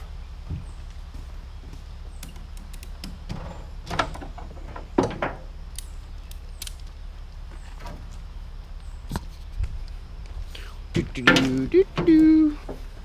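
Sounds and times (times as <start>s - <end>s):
steady low hum: 0.0s - 13.0s
objects knocking and clunking: 3.0s - 5.5s, 11.2s - 12.9s
small clicks: 5.7s - 7.0s.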